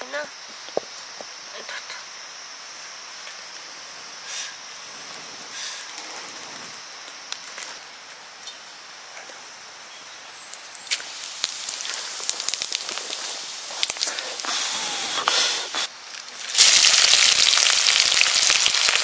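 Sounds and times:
high insect buzz: 0:00.0 - 0:19.0
hiss: 0:02.7 - 0:08.9, 0:10.5 - 0:19.0.

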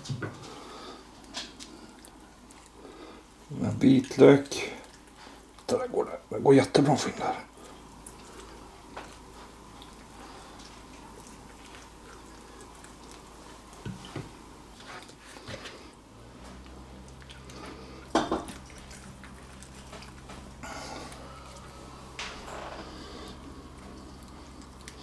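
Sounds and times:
hands squishing raw chicken: 0:00.0 - 0:05.9
low steady hum: 0:00.0 - 0:25.0.

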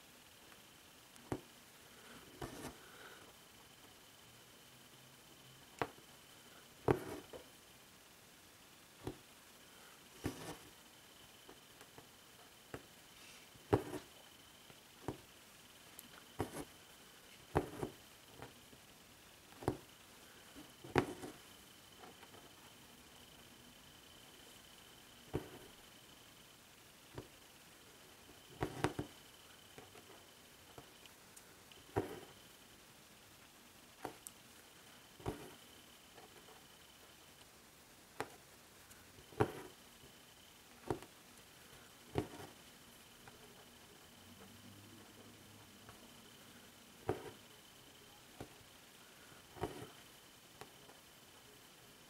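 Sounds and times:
needle tapping through fabric: 0:02.4 - 0:02.8, 0:05.8 - 0:06.0, 0:06.8 - 0:07.4, 0:09.0 - 0:09.3, 0:10.2 - 0:10.7, 0:13.7 - 0:14.2, 0:16.1 - 0:16.8, 0:17.5 - 0:18.6, 0:19.5 - 0:19.9, 0:20.6 - 0:21.4, 0:25.3 - 0:25.7, 0:28.6 - 0:29.2, 0:31.9 - 0:32.3, 0:35.2 - 0:35.6, 0:38.2 - 0:38.4, 0:39.2 - 0:39.8, 0:40.8 - 0:41.2, 0:42.1 - 0:42.6, 0:47.0 - 0:47.5, 0:49.6 - 0:50.0
needle piercing fabric: 0:16.0 - 0:18.6, 0:19.5 - 0:23.5, 0:49.5 - 0:50.8.

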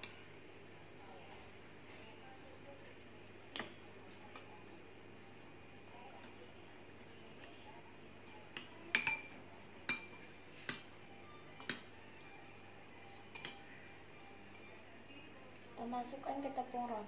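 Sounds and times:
cutlery clinking on ceramic plate: 0:08.6 - 0:10.9, 0:11.5 - 0:12.4, 0:13.0 - 0:13.6.

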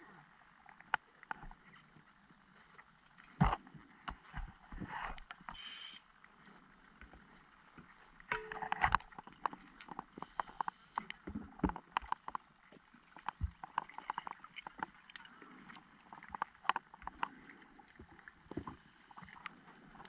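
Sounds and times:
underwater clicks and crackles: 0:00.0 - 0:20.0
short high hissing: 0:05.6 - 0:06.0.

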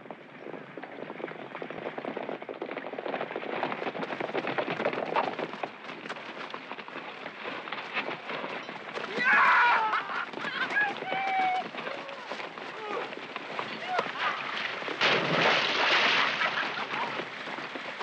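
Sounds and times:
horses galloping on dry dirt: 0:00.0 - 0:18.0.

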